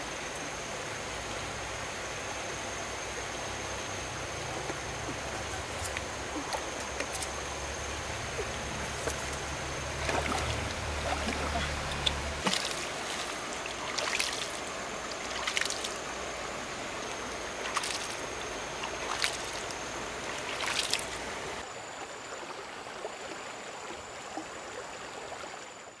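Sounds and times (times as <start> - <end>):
water splashes: 3.9 - 21.6
water running: 4.1 - 21.6.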